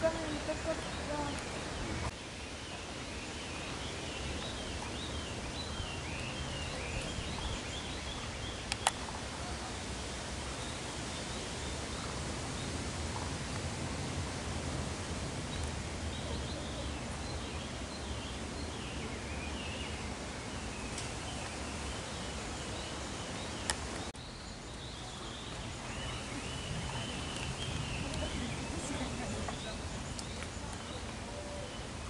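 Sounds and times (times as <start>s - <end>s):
outdoor background noise: 0.0s - 32.0s.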